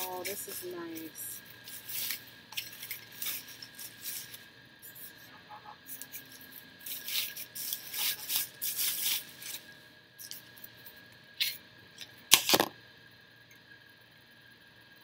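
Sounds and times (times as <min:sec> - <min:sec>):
bubble wrap crinkling: 0:00.0 - 0:05.2, 0:05.9 - 0:10.6.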